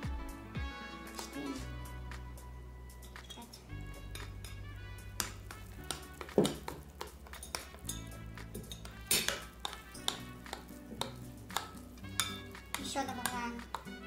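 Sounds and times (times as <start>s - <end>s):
background music: 0.0s - 14.0s
metal spoon clinking glass bowl: 3.0s - 4.6s, 5.2s - 13.9s
spoon stirring thick batter: 3.0s - 14.0s.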